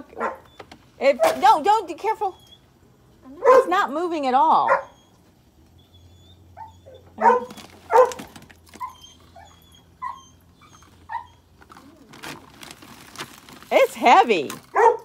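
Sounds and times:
dog barking and yipping: 0.1s - 1.7s, 3.3s - 4.0s, 4.6s - 5.2s, 6.4s - 11.6s, 14.7s - 15.0s.

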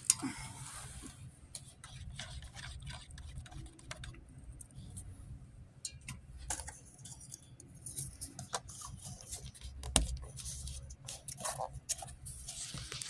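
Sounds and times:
stir stick scraping in paper cup: 1.6s - 4.2s.

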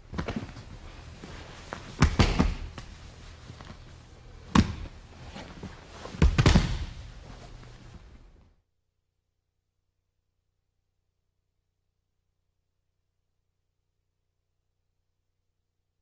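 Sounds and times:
bodies thudding onto gym mat: 0.1s - 0.8s, 1.6s - 3.0s, 4.4s - 7.6s.

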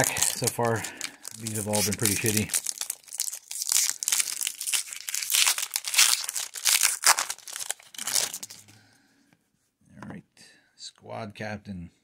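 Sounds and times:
foil wrapper crackling: 0.0s - 8.6s.

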